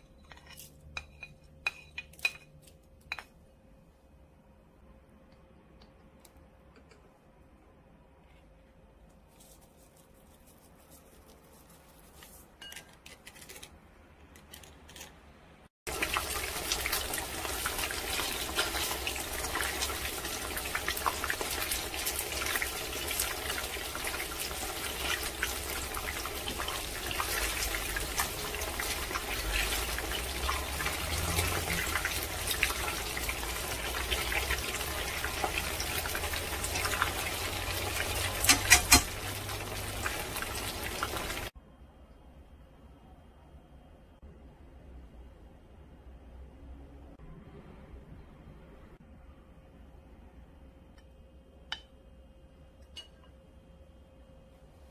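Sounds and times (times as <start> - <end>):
food deep-frying in hot oil: 15.9 - 41.6.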